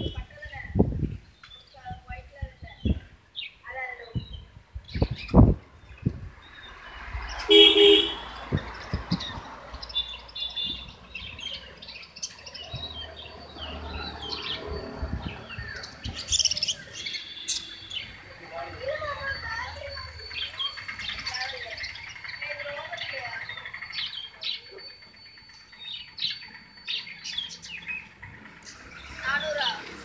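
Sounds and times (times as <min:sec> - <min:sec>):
budgerigars chirping: 0:07.4 - 0:29.8.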